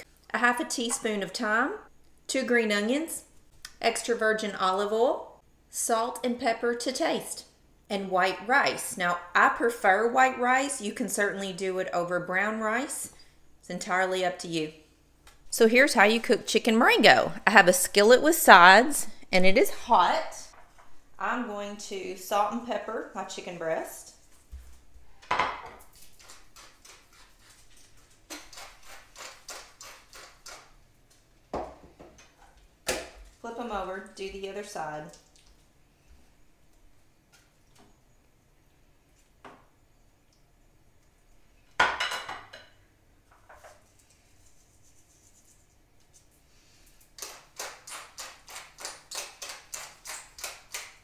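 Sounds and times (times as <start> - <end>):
pepper mill grinding: 25.9 - 30.7.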